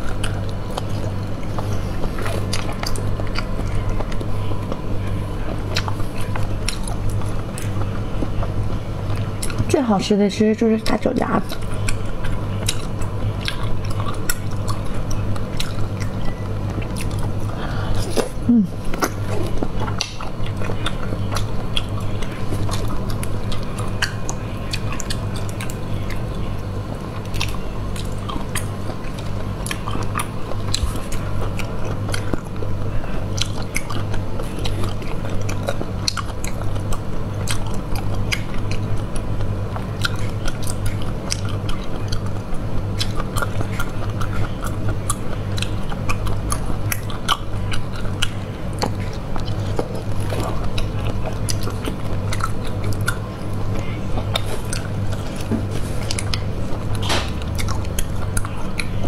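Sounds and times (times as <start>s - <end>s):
wet sucking and chewing: 0.0s - 9.7s, 27.0s - 59.0s
steady low hum: 0.0s - 59.0s.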